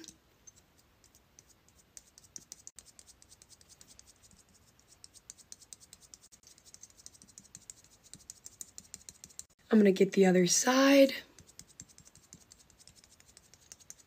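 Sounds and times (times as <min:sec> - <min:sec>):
ornament ball tapping on cheek: 0:04.9 - 0:09.6, 0:11.4 - 0:14.0.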